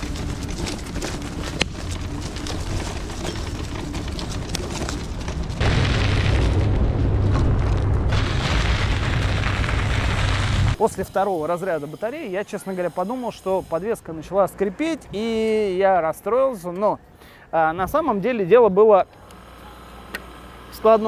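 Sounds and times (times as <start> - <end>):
scooter rolling over rough ground: 0.0 - 10.8.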